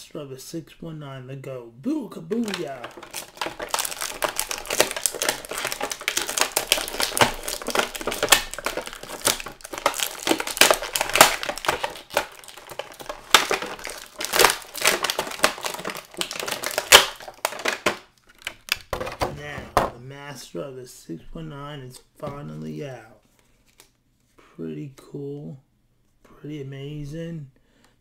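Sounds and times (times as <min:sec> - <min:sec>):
plastic packaging crinkling: 0:02.3 - 0:19.6.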